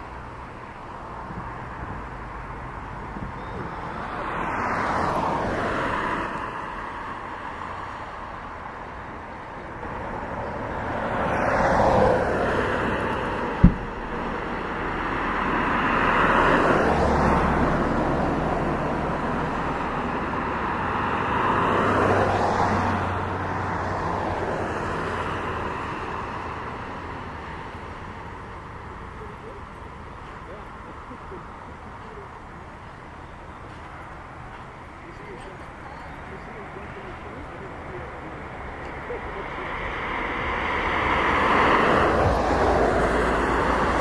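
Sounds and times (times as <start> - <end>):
vehicles passing: 0.0 - 44.0
sharp knock: 13.6 - 14.0.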